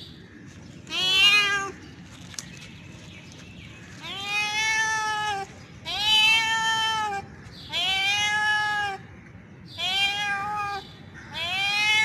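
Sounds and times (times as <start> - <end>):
cat yowling mating calls: 0.9 - 1.8, 4.0 - 9.0, 9.8 - 12.0.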